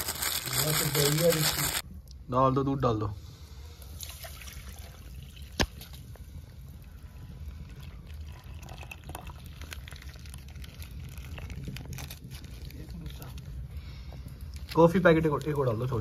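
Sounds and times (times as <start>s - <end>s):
milk pouring into saucepan: 4.0s - 5.5s, 7.0s - 11.6s.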